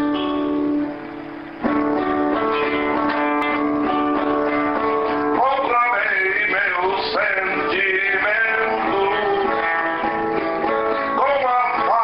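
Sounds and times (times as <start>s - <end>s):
acoustic guitar chords: 0.0s - 12.0s
man singing: 5.3s - 12.0s.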